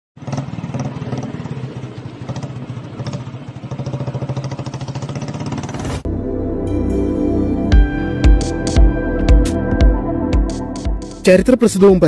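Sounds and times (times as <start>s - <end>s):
motorcycle engine idling: 0.2s - 5.8s.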